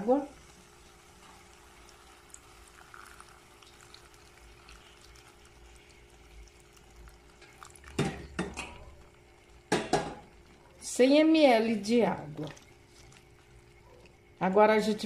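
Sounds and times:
stew simmering in a pot: 0.1s - 15.0s
utensil knocking against a pot: 9.7s - 10.2s.

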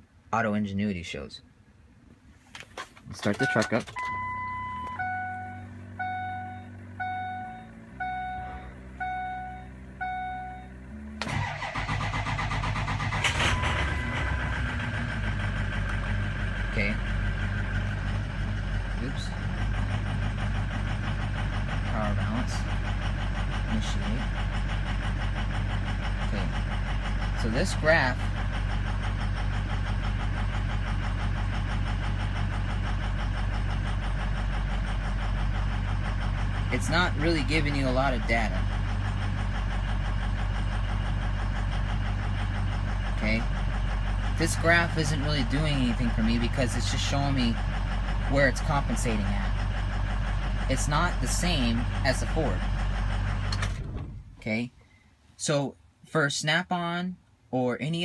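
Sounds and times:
diesel engine cranking and starting: 2.7s - 55.4s
low steady hum: 3.1s - 23.0s, 50.3s - 57.4s
truck warning chime: 3.3s - 10.8s, 13.1s - 15.0s.

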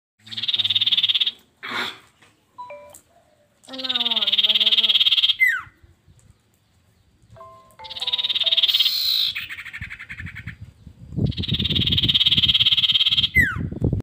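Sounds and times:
bird singing whistles and trills: 7.4s - 14.0s.

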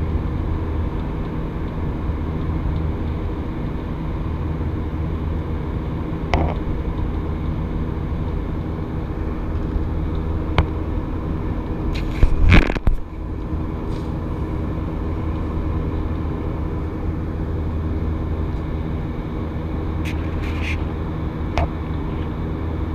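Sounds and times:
jet engines droning in cabin: 0.0s - 22.9s
camera scraping against window: 11.9s - 13.0s, 20.0s - 20.9s.

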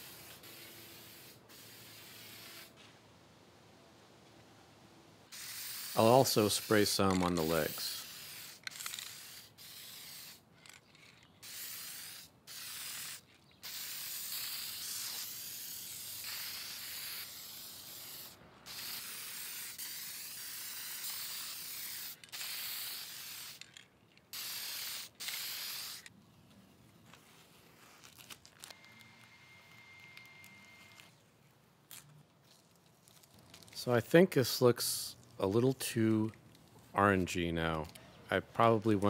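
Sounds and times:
aerosol spray can hissing: 0.0s - 2.7s, 5.3s - 10.4s, 11.4s - 23.6s, 24.3s - 26.1s.

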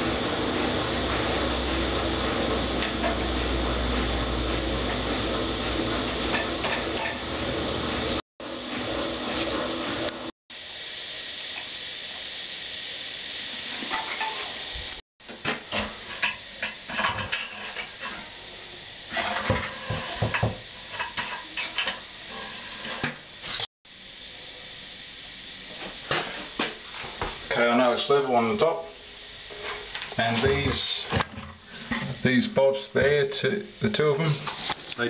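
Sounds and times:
steady hiss: 7.8s - 35.0s.

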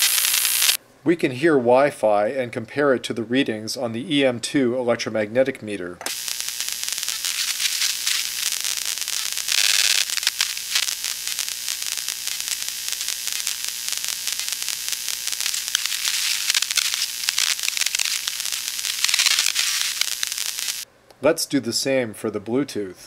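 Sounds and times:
radio receiver hiss with crackling clicks: 0.0s - 0.8s, 6.0s - 20.9s.

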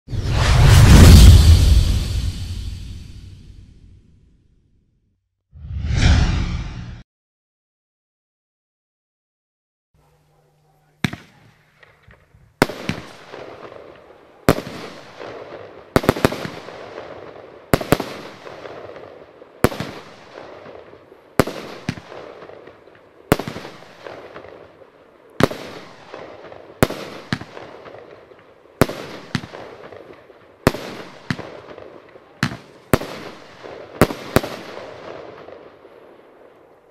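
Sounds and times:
firework bangs with crackle: 12.6s - 13.9s, 14.5s - 24.8s, 25.4s - 28.2s, 28.8s - 35.8s.

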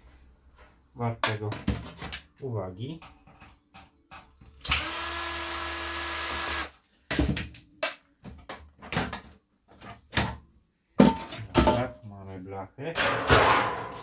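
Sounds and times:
cordless drill whining: 4.7s - 6.7s
metal panel clattering: 13.0s - 14.0s.

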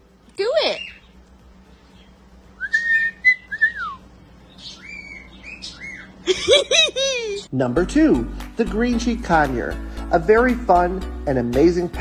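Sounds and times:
cockatiel whistling: 2.6s - 4.0s, 4.6s - 6.2s.

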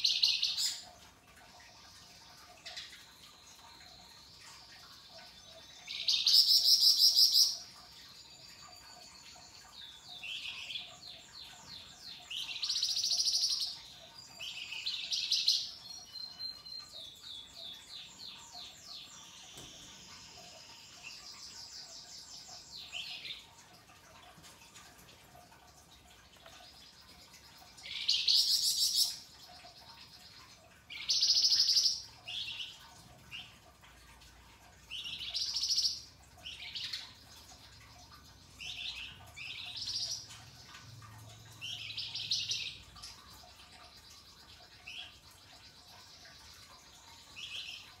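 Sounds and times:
songbird chattering song: 26.4s - 33.6s.

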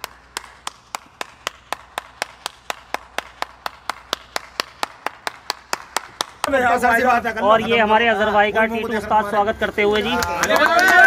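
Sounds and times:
person clapping hands: 0.0s - 6.6s, 10.1s - 11.0s.

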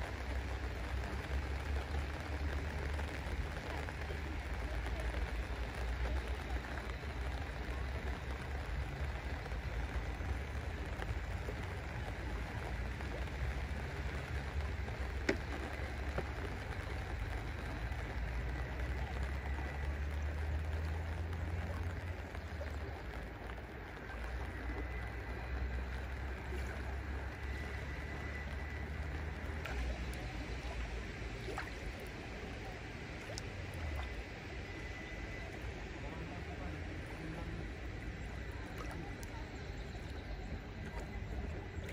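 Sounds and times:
light rain on water: 0.0s - 41.9s
steady low rumble: 0.0s - 41.9s.

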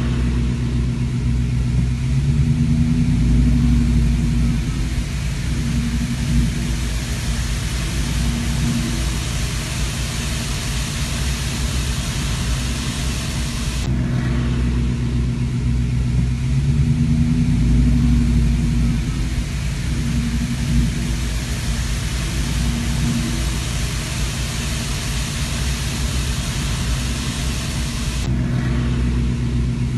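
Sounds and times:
car engine hum: 0.0s - 29.9s
road noise: 0.0s - 29.9s
bright rushing hiss: 3.6s - 13.9s, 18.8s - 28.3s.

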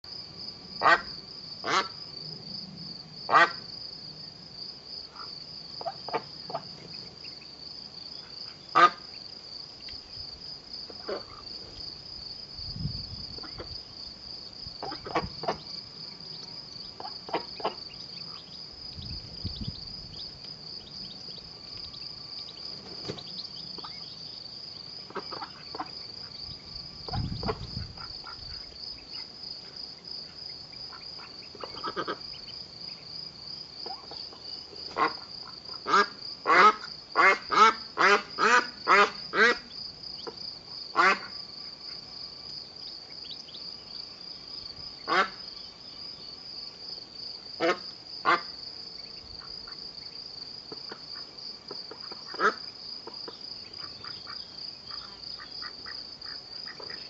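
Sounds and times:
crickets chirping: 0.0s - 57.0s
ducklings peeping: 5.2s - 7.5s, 10.9s - 11.4s, 13.4s - 13.8s, 14.8s - 15.8s, 16.8s - 24.2s, 25.0s - 29.4s, 30.2s - 33.0s, 35.9s - 40.4s, 51.7s - 57.0s.

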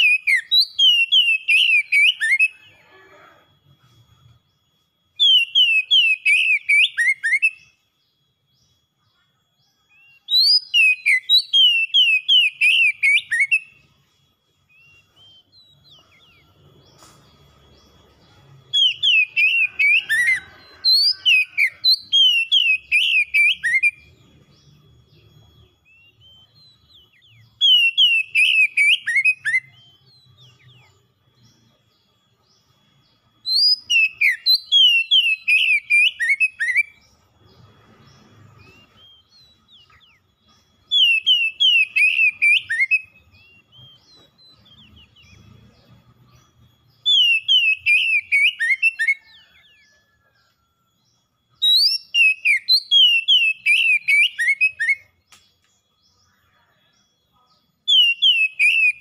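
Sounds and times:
bird singing whistled phrases: 0.0s - 3.4s, 5.1s - 16.6s, 18.6s - 37.2s, 37.9s - 50.4s, 51.5s - 56.9s, 57.7s - 59.0s.

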